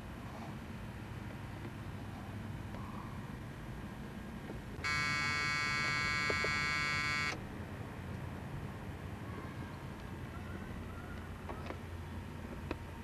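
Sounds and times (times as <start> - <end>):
electric buzzing tone: 4.8 - 7.4.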